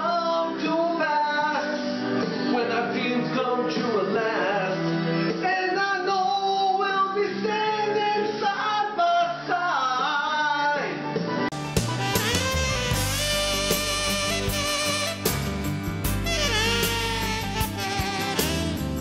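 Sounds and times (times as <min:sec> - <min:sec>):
man singing: 0:00.0 - 0:11.1
bright music track: 0:10.8 - 0:19.0
guitar music: 0:11.5 - 0:19.0.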